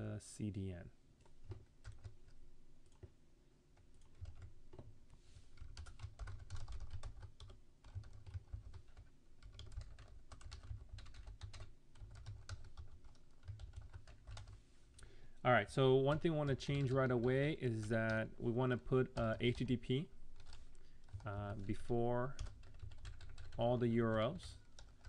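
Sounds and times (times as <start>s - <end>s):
typing on computer keyboard: 1.2s - 3.1s, 3.9s - 4.9s, 5.6s - 14.6s, 20.4s - 21.6s, 22.3s - 25.0s.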